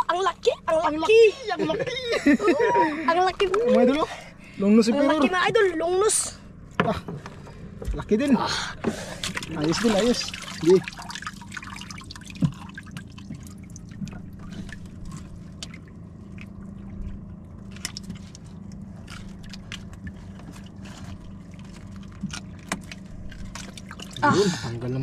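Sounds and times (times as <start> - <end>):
low steady hum: 0.0 - 25.0
water lapping and dripping: 8.8 - 25.0
small splashes and clicks: 9.1 - 24.2.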